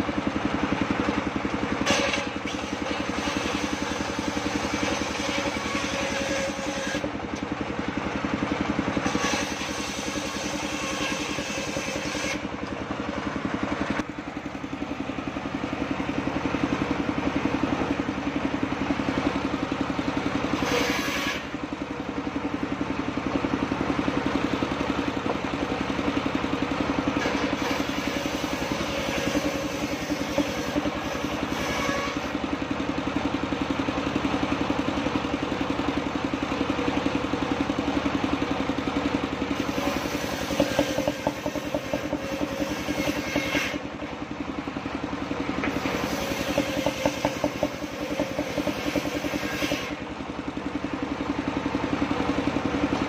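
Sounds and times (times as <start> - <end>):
sawmill engine running: 0.0 - 53.0
saw blade cutting timber: 1.2 - 14.1, 20.4 - 22.6, 26.9 - 32.6, 39.4 - 44.4, 45.3 - 50.1.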